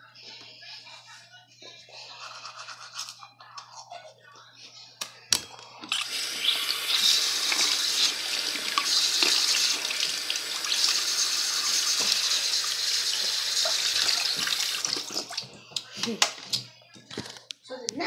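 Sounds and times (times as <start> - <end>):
tap running into sink: 6.4 - 15.4.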